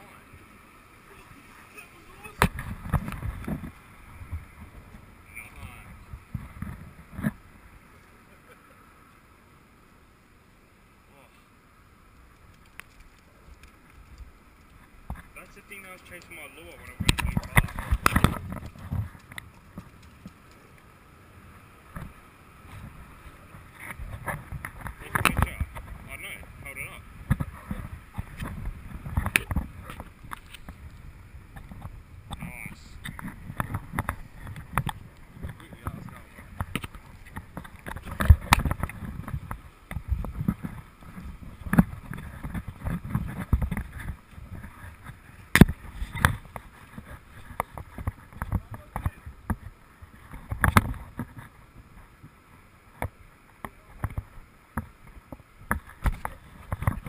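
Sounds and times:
camera rubbing and thumping: 2.2 - 5.0, 6.2 - 7.4, 16.2 - 20.4, 21.9 - 26.1, 26.7 - 51.6, 54.0 - 57.0.

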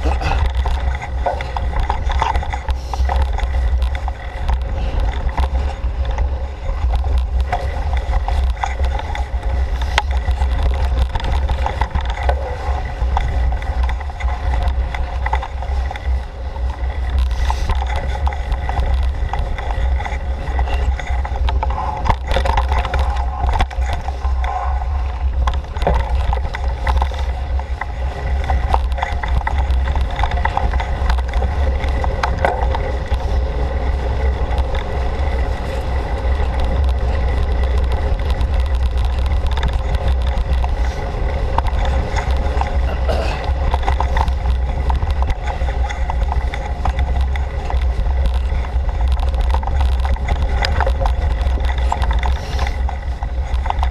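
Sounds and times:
bike rattles and knocks: 0.0 - 53.9
wind rumble on microphone: 0.0 - 53.9.

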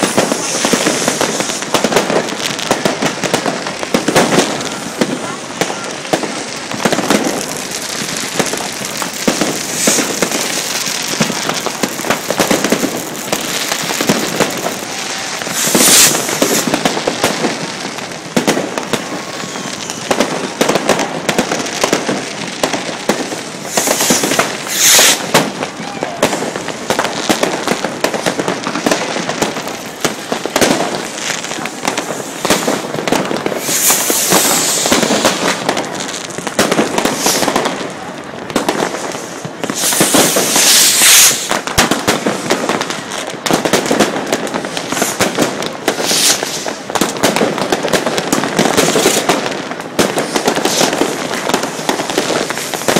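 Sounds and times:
loud hissing bursts: 0.0 - 1.8, 8.4 - 16.8, 23.6 - 25.3, 33.5 - 35.6, 37.0 - 37.6, 39.2 - 41.6, 46.0 - 46.8
firecrackers crackling: 0.0 - 52.9.

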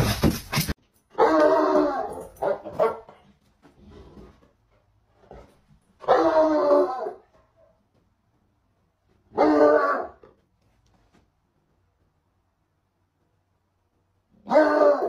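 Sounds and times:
hound barking: 1.2 - 3.2, 6.0 - 7.2, 9.3 - 10.2, 14.4 - 15.0.

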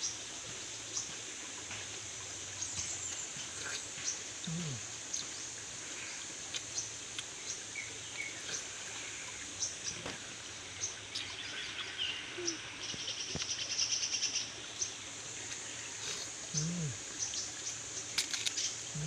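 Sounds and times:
birds chirping: 2.6 - 5.4, 16.0 - 19.0.

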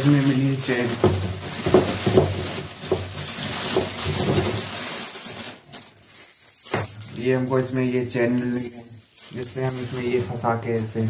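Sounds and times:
steel chain clinking and jangling: 4.5 - 11.0.

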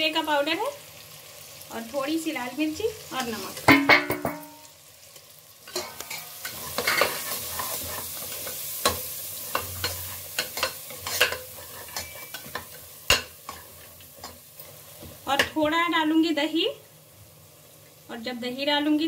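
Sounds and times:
masala sizzling in oil: 0.0 - 19.0
spatula scraping pot: 5.7 - 14.8.

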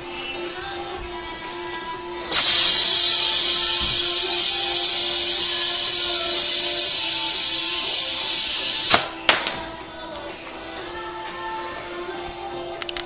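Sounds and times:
compressed air hissing: 2.3 - 9.1
air chuck clicks: 2.4 - 9.1.

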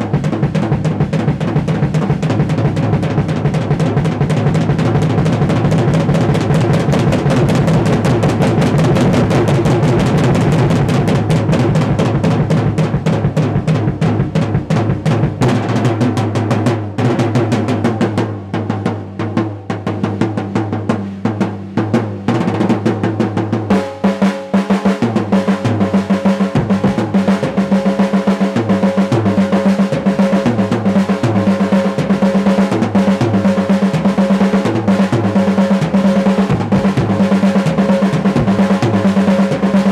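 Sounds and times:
drum kit solo: 0.0 - 39.9.

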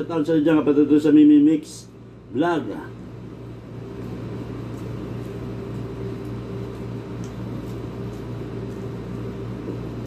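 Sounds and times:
appliance humming: 0.0 - 10.0
man chewing: 4.0 - 10.0.

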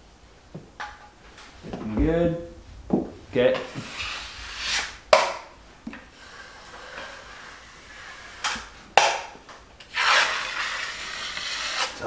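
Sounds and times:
taping knife scraping: 9.9 - 12.0.

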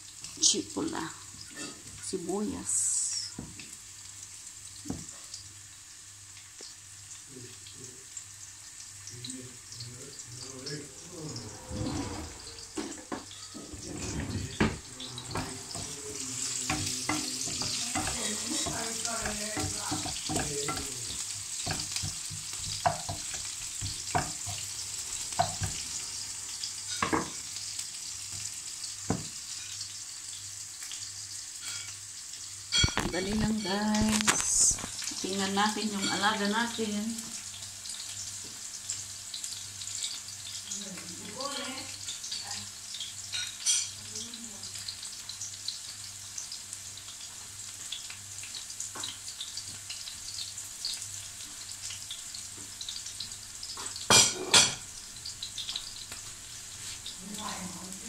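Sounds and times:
onions sizzling in oil: 0.0 - 58.0
wooden spoon scraping pan: 11.2 - 24.7.

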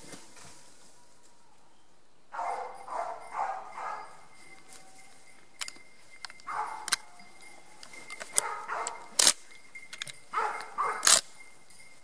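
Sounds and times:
dogs barking: 2.3 - 4.3, 6.4 - 9.3, 10.3 - 11.2
sharp cracks: 11.0 - 11.3.

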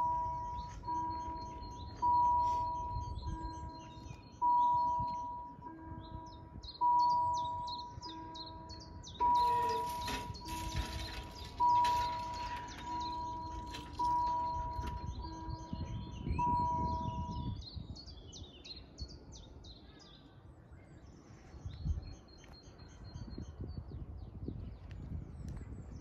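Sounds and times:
level crossing warning bells: 0.0 - 17.6
small birds chirping: 0.0 - 25.7.

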